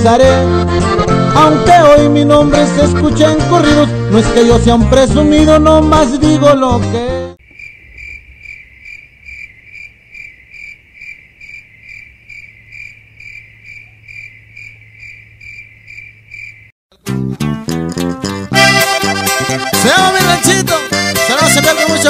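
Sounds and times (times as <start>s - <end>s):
cricket chirping: 7.4s - 16.7s.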